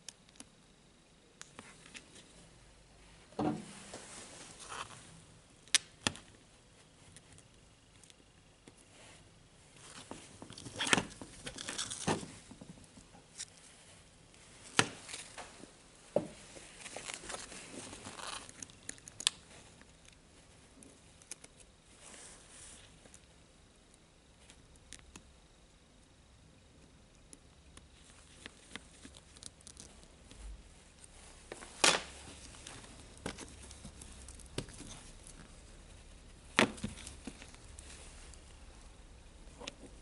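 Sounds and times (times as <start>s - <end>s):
gloved hands rustling: 8.7s - 23.2s, 27.8s - 40.0s.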